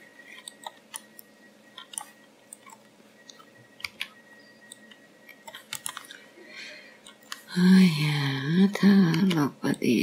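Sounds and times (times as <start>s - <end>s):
mouse buttons clicking: 0.4s - 6.1s.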